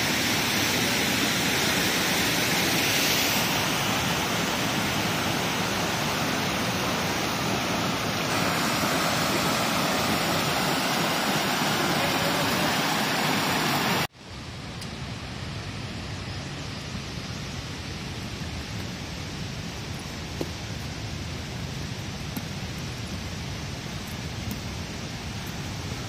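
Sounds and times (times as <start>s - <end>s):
rushing water: 0.0s - 14.1s.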